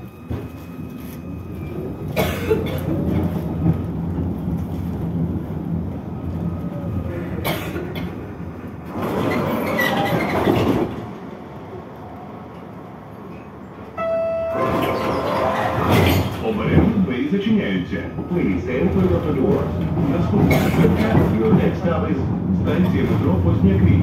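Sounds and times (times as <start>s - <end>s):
tram rattling: 0.0s - 24.0s
tram wheels rumbling: 0.0s - 24.0s.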